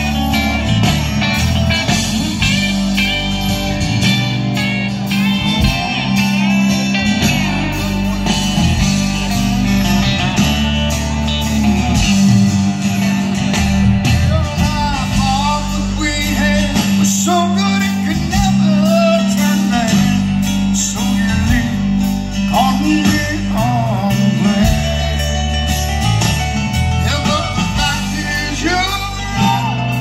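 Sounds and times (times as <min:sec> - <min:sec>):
live country band playing: 0:00.0 - 0:30.0
person singing: 0:14.0 - 0:25.7, 0:27.0 - 0:30.0.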